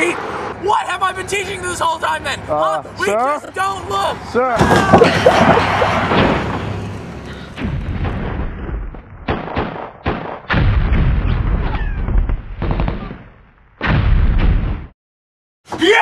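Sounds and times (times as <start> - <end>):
gunfire bangs: 7.6 - 14.9
loud explosion blast: 7.6 - 14.9.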